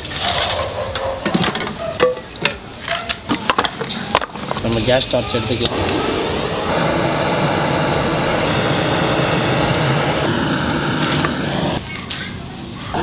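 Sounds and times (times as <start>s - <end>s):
gas torch roaring: 4.6s - 11.9s.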